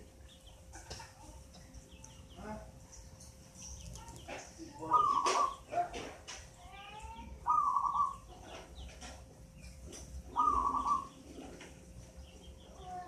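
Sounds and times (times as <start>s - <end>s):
dove cooing: 4.8s - 6.0s, 7.4s - 8.6s, 10.2s - 11.7s.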